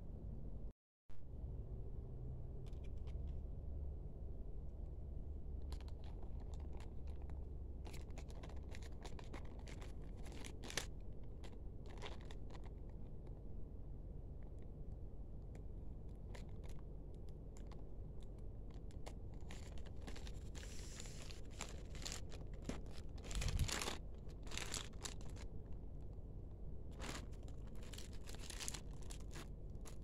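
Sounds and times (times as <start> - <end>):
steady low hum: 0.0 - 30.0
plastic crinkling: 5.6 - 13.4, 16.1 - 26.0, 26.8 - 30.0.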